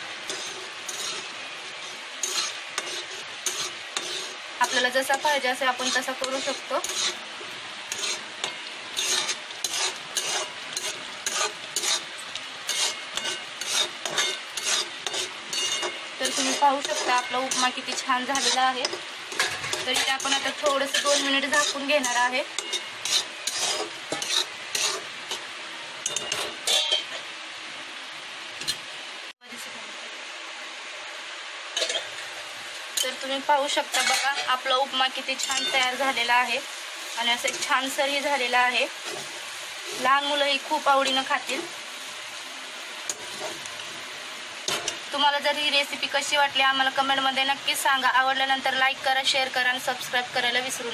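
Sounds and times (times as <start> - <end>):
metal spoon scraping metal pan: 0.0 - 27.2, 33.0 - 36.4, 37.3 - 40.4, 43.1 - 43.7, 44.6 - 45.1.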